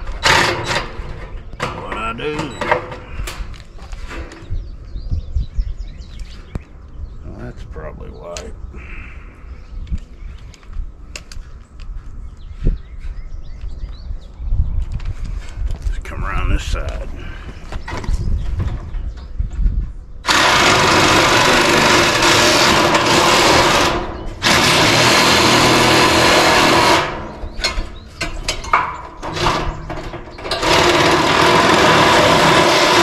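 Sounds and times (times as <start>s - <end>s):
drill shear cutting steel panel: 0.0s - 1.2s, 20.2s - 27.9s, 28.5s - 33.0s.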